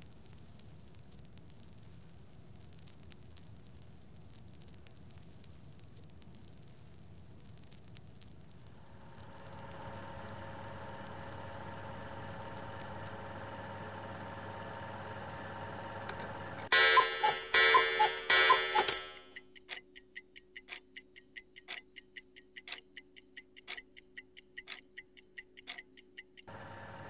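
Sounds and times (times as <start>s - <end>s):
film projector hum: 8.7s - 19.2s, 26.4s - 27.0s
clock ticking: 16.6s - 26.5s
loud ringing strikes: 16.7s - 19.3s.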